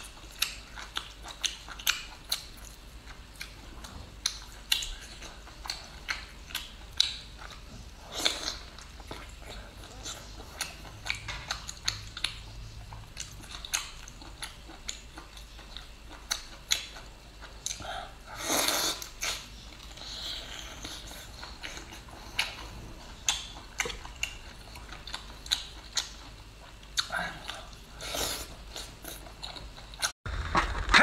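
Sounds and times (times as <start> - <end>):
wet chewing and lip smacks: 0.1 - 3.6, 4.2 - 7.6, 8.2 - 17.9.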